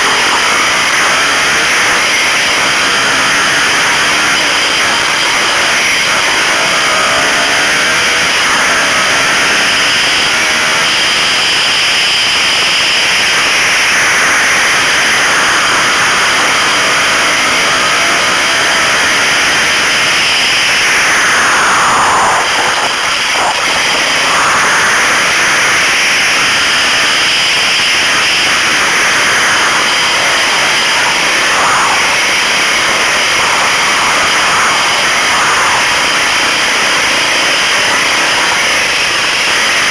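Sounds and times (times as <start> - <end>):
off-road motorcycle engine revving: 0.0 - 39.9
wind noise: 0.0 - 39.9.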